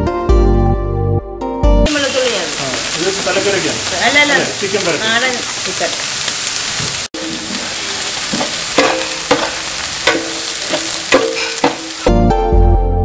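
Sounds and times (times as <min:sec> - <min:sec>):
onions sizzling in hot oil: 0:01.9 - 0:12.2.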